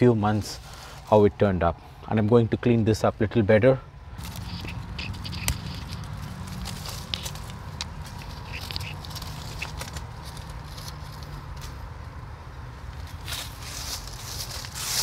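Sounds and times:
dry leaves rustling and crackling: 4.2 - 15.0.

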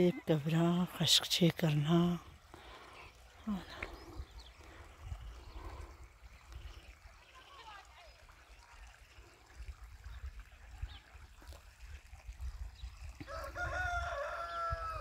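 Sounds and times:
rooster crowing: 13.3 - 15.0.

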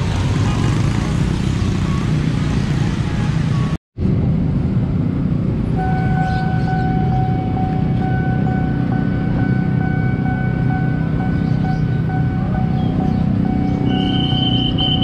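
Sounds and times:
motorcycle engines running: 0.0 - 3.7, 4.8 - 15.0
level crossing alarm ringing: 5.8 - 15.0.

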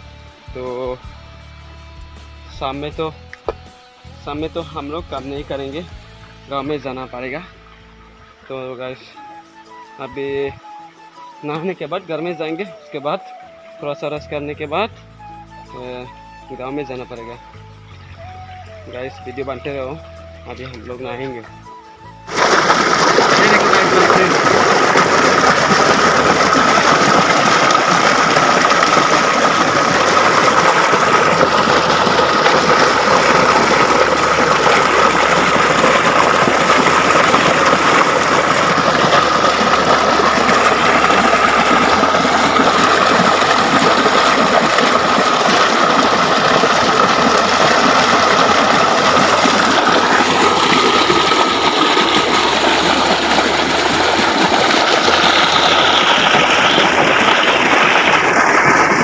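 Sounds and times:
waterfall rushing and splashing: 22.3 - 59.0.

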